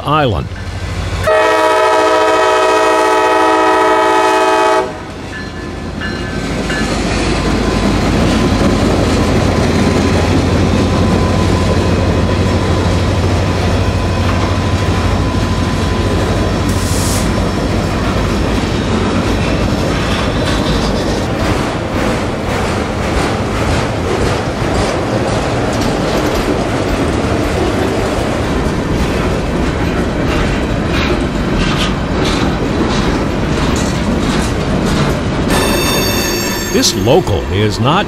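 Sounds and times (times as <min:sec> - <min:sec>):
locomotive engine rumbling: 0:00.0 - 0:38.0
locomotive air horn chord: 0:01.2 - 0:05.1, 0:35.5 - 0:36.9
train wheels clattering over joints: 0:17.4 - 0:36.6.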